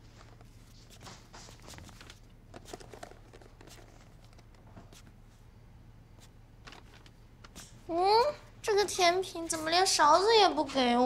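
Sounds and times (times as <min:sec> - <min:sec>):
faint rustles and taps: 0:00.0 - 0:05.4.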